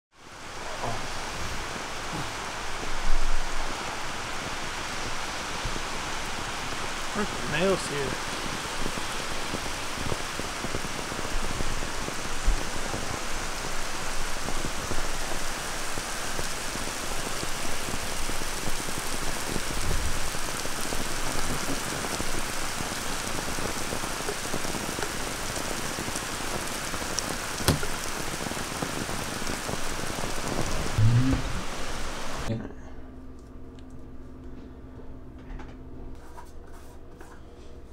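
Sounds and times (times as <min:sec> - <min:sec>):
rain falling on pavement: 0:00.2 - 0:32.5.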